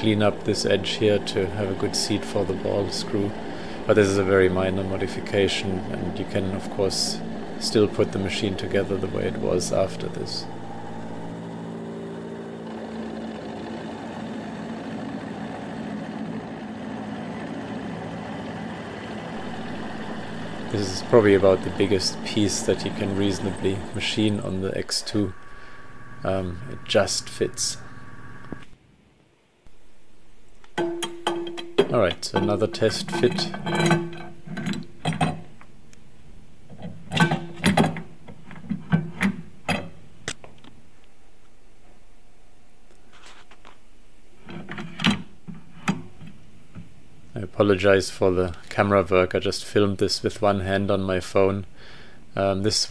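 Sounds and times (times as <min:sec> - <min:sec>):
rough metal cutting noise: 0:00.0 - 0:13.1, 0:19.2 - 0:28.7
mill spindle motor running: 0:00.0 - 0:28.8
metal clunks and clinks: 0:30.8 - 0:35.4.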